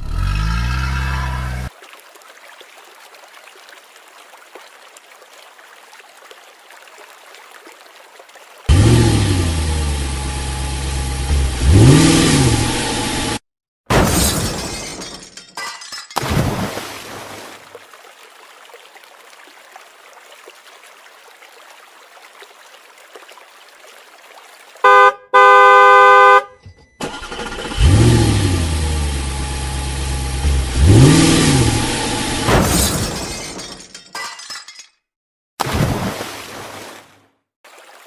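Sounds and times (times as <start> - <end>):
engine revving: 0.0 - 1.7, 8.7 - 13.4, 27.0 - 32.6
car horn honking: 24.8 - 26.8.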